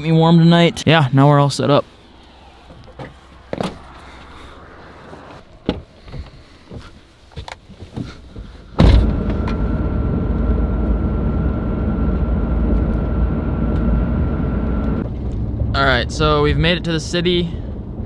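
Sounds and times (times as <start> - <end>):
road and engine noise in car cabin: 0.0 - 18.0
faint steady whine: 8.8 - 15.0.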